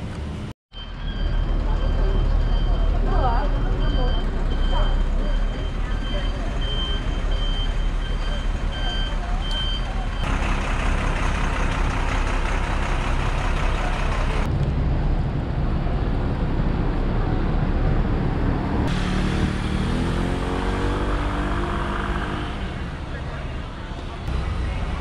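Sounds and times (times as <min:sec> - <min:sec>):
street traffic: 0:00.0 - 0:25.0
vehicle engine accelerating: 0:10.0 - 0:25.0.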